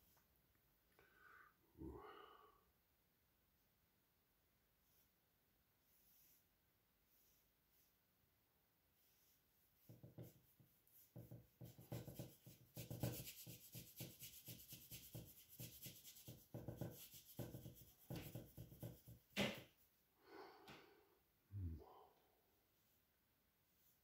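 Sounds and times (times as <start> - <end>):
paintbrush scrubbing paint: 4.8 - 19.8.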